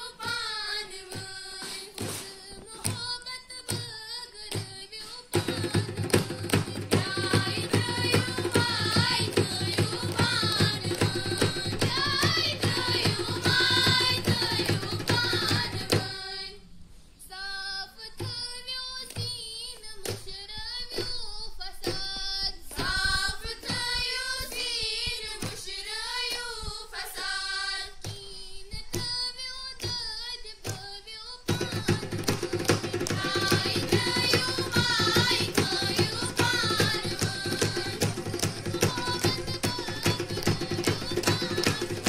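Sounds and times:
girls singing: 0.0 - 42.0
hand drum beating: 5.3 - 16.1, 31.5 - 42.0.

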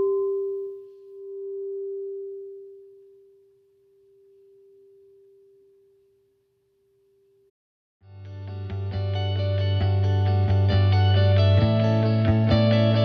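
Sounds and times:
singing bowl ringing: 0.0 - 6.6.

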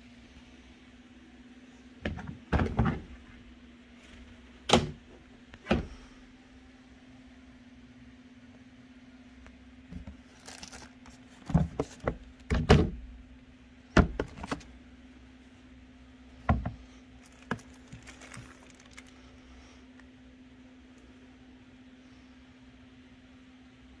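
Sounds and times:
plastic bags crinkling: 10.0 - 12.0, 17.2 - 19.2.

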